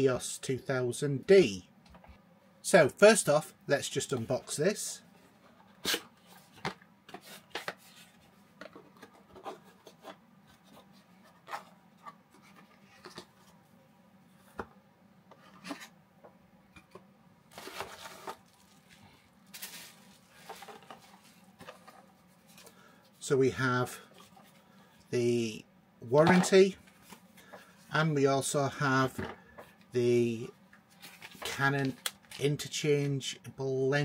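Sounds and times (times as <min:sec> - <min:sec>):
box rubbing and sliding: 0:17.5 - 0:18.5
paper rustling: 0:17.5 - 0:22.9, 0:30.9 - 0:32.4.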